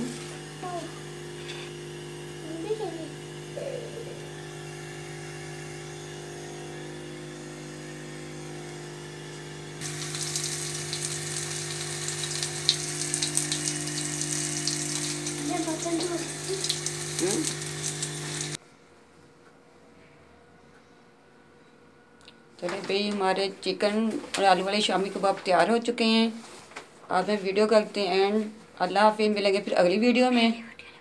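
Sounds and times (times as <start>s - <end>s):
hot oil sizzling and popping: 9.8s - 18.6s.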